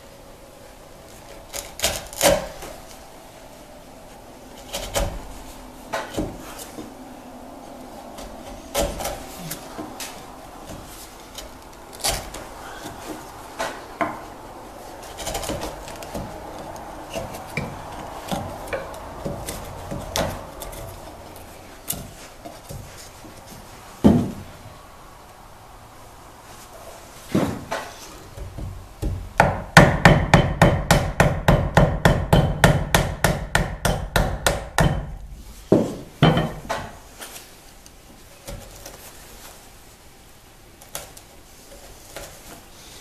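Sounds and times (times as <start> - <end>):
chisel scraping wood: 15.0 - 21.2
loud knock: 28.6 - 35.1.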